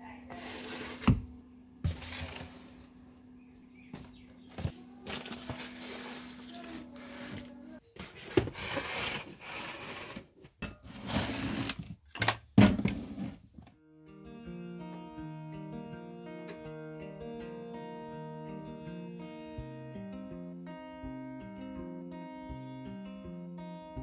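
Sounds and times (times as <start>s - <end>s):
cardboard boxes sliding and rustling: 0.3s - 1.2s, 1.9s - 2.9s, 5.1s - 10.3s
plastic basket of bottles handled: 1.9s - 3.0s, 4.0s - 9.4s
packets being shuffled: 4.6s - 7.8s.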